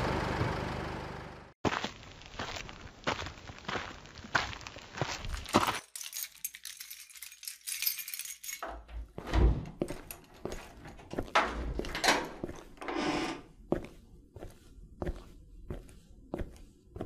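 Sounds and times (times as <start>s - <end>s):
keys jangling: 5.3s - 9.0s, 9.8s - 12.6s
heavy footsteps: 9.0s - 17.0s.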